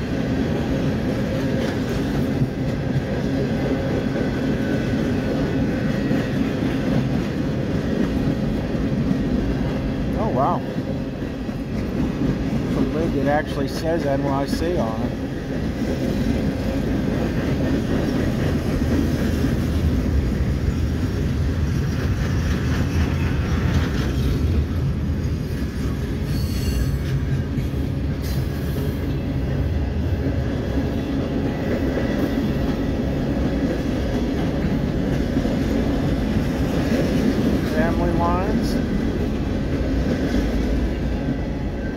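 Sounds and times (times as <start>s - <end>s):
freight cars rumbling on rails: 0.0s - 41.9s
wheel squeal: 26.2s - 27.1s.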